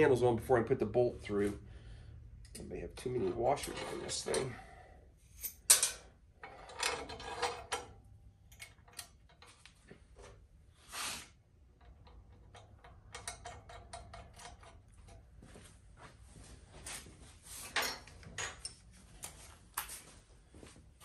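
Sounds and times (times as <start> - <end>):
metal clicks of bolt and washers: 2.4 - 2.8, 5.4 - 9.8, 11.8 - 15.2
metal scrape: 3.0 - 4.7, 6.4 - 7.8.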